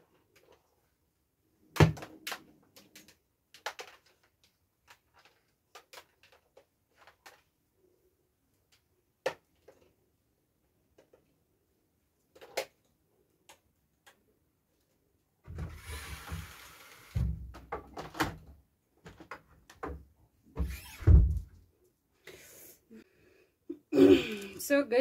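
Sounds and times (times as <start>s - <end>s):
dull thumps of wardrobe: 17.2s - 18.4s, 19.8s - 21.6s.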